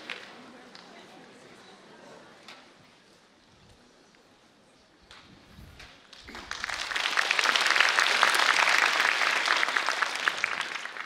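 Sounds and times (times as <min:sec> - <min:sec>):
audience applause: 0:06.2 - 0:11.0.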